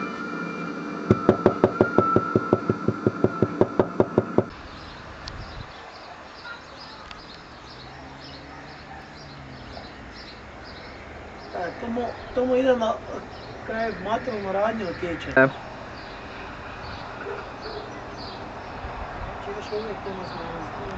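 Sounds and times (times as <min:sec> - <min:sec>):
music with fast sharp knocks: 0:01.1 - 0:04.5
faint birds chirping: 0:01.1 - 0:20.9.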